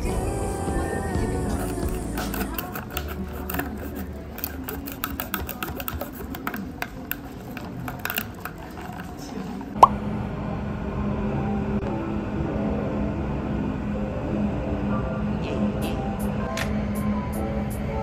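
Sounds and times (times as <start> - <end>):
tableware clicking and tapping: 2.2 - 9.8.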